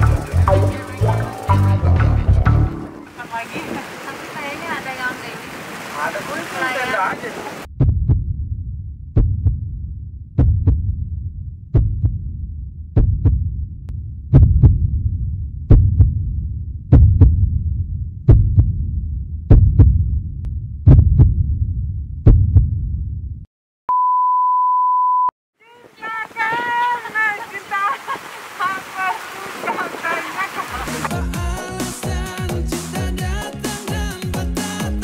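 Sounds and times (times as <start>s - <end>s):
heartbeat double thuds: 7.8s - 8.5s, 9.1s - 11.1s, 11.7s - 12.4s, 13.0s - 13.6s, 14.3s - 16.3s, 16.9s - 20.2s, 20.8s - 23.0s
low rumble: 7.8s - 23.5s.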